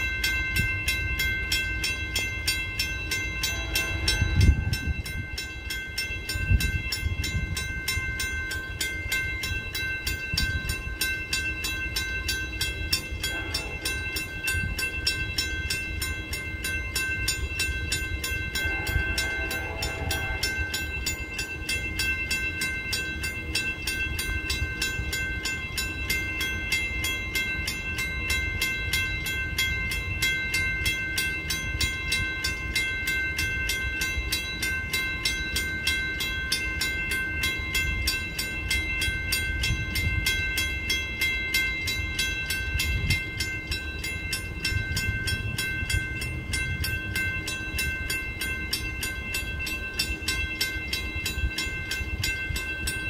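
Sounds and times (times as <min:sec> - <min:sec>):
crossing warning bell ringing: 0:00.0 - 0:53.0
diesel locomotive rumble: 0:00.4 - 0:26.0.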